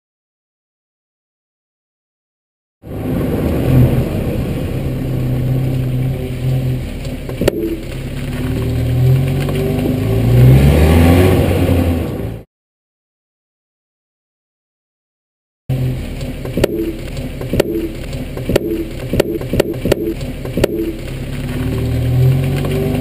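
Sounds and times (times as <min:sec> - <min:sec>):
car engine running under load: 0:02.8 - 0:12.4, 0:15.7 - 0:23.0
suspension clunk: 0:06.4 - 0:10.0, 0:16.0 - 0:23.0.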